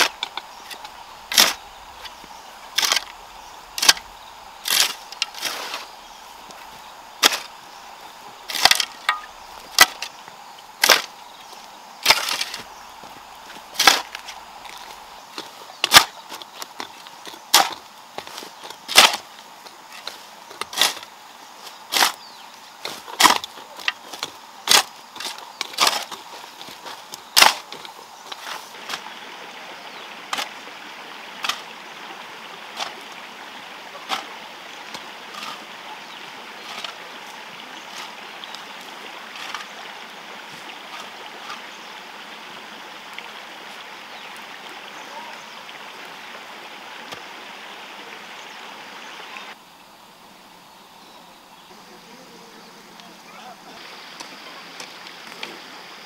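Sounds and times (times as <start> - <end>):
shovel chopping into soil: 0.0 - 1.6, 12.0 - 12.8, 13.8 - 14.4, 15.4 - 19.3, 20.0 - 21.1, 21.7 - 29.1.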